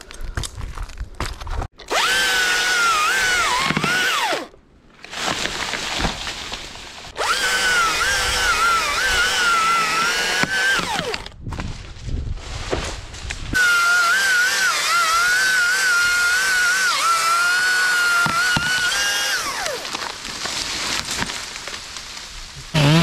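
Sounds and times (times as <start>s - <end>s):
chainsaw cutting wood: 1.8s - 4.5s, 7.2s - 11.3s, 13.6s - 21.3s, 22.7s - 23.0s.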